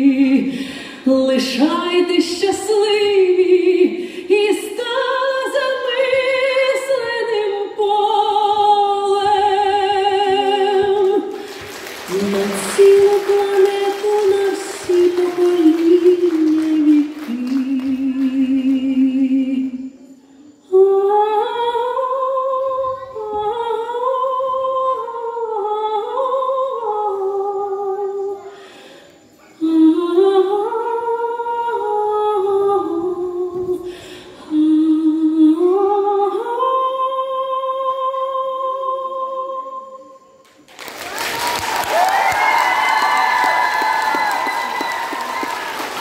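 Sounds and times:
high voice singing wordless melody: 12.1s - 28.6s.

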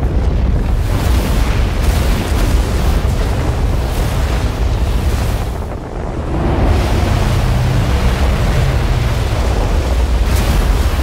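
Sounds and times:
deep continuous rumble: 0.0s - 11.0s.

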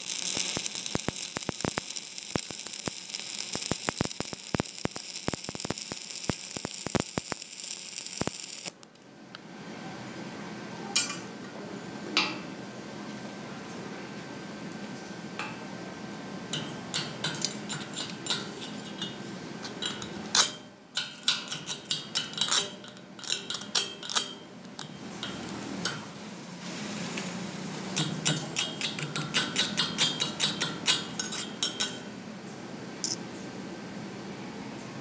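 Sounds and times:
slag chipping metallic clinks: 0.0s - 8.7s, 16.5s - 26.2s, 28.0s - 32.2s.

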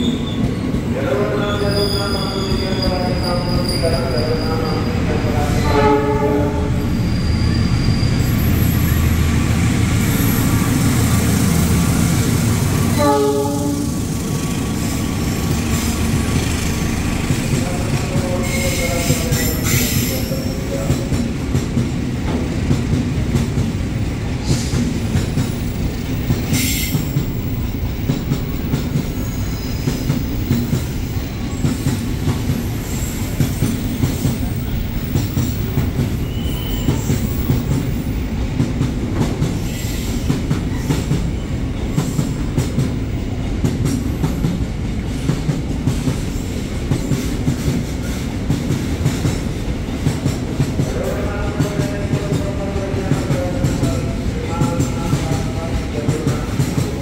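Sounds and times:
freight wagons rumbling on rails: 1.5s - 57.0s
high wheel squeal: 6.8s - 9.1s, 10.0s - 10.7s, 35.5s - 37.4s.

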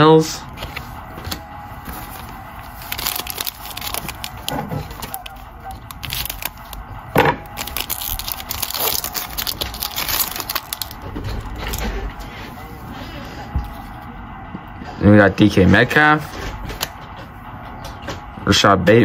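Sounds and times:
card packaging crackling: 0.6s - 12.2s.

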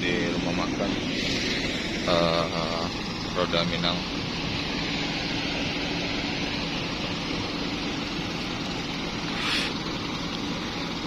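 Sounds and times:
bus diesel engine humming: 0.0s - 11.0s
brief hiss: 9.3s - 9.8s.

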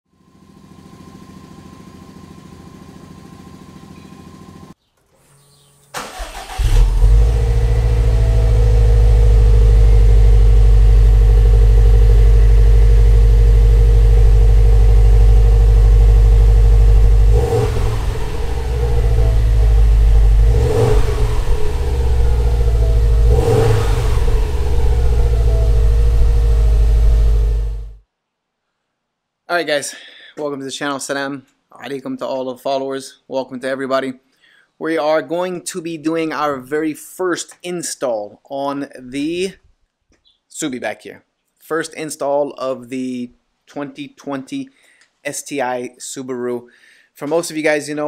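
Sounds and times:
car engine starting and idling: 0.2s - 28.0s
engine revving briefly: 16.3s - 28.0s.

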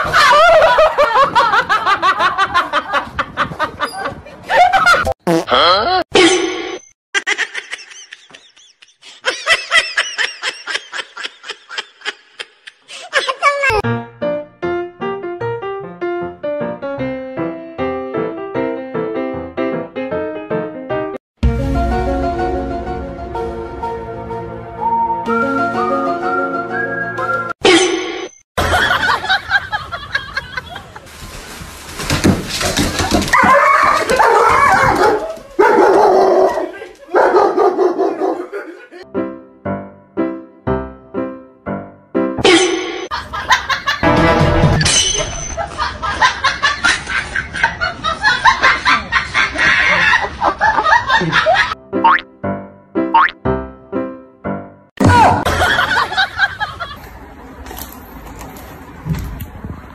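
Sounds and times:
person laughing: 0.0s - 6.4s, 7.2s - 13.8s, 38.2s - 39.1s, 48.3s - 51.8s
dog barking and yelping: 33.3s - 38.7s.

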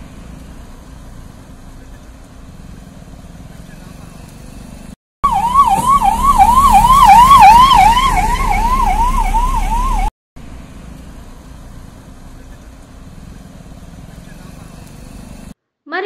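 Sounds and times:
electronic siren yelping: 5.2s - 10.1s.

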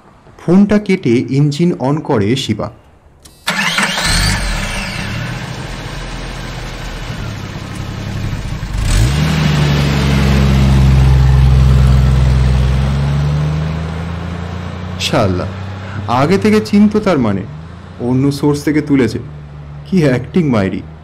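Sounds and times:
car engine running and revving: 3.8s - 18.0s.

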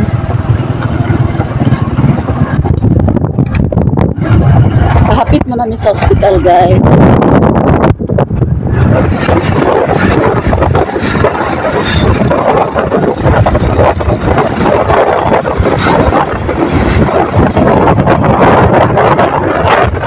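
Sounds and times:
motorcycle engine: 0.0s - 5.4s
road noise: 0.0s - 20.0s
wind buffeting microphone: 0.0s - 20.0s.

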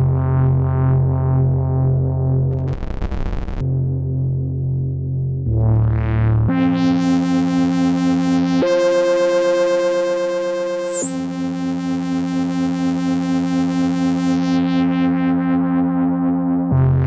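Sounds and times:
synthesizer sustained pad: 6.4s - 17.0s.

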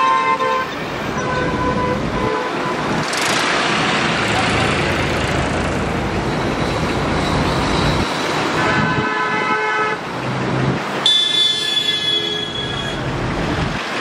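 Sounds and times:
road and engine noise: 0.0s - 14.0s
vehicle horn blasts: 11.0s - 13.0s.

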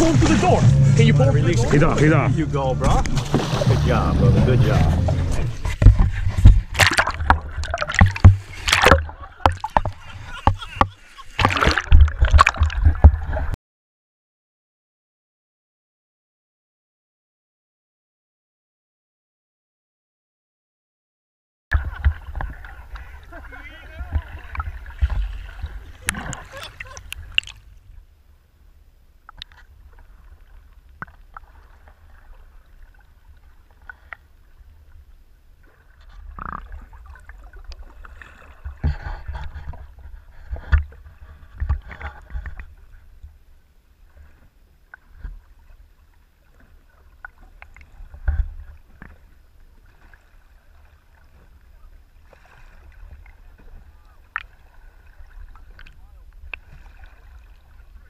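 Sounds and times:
underwater water rumble: 0.0s - 13.6s, 21.7s - 58.0s
bubbling: 3.1s - 13.6s, 24.0s - 27.7s
underwater clicks and knocks: 5.0s - 13.6s, 24.1s - 27.6s, 38.6s - 42.7s, 55.7s - 56.6s.

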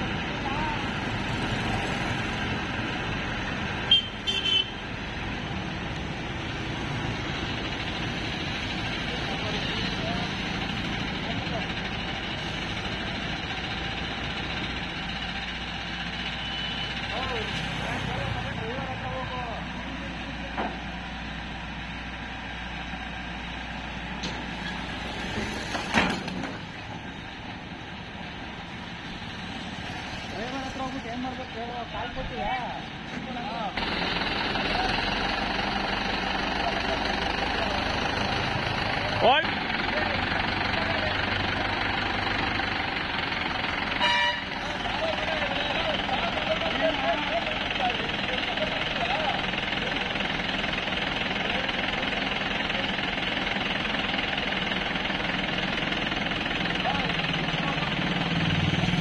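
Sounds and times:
diesel engine running: 0.0s - 59.0s
short high horn toots: 3.9s - 4.8s, 44.0s - 44.5s.

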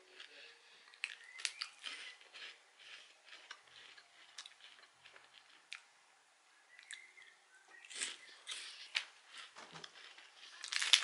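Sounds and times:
biscuit stick crunching: 0.0s - 5.9s, 6.7s - 11.0s.

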